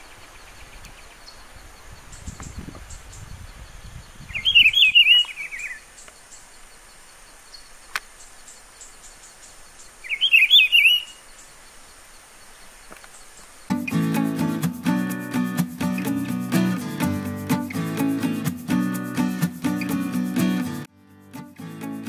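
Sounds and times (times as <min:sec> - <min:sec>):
bird singing warbled phrases: 0:00.0 - 0:11.9.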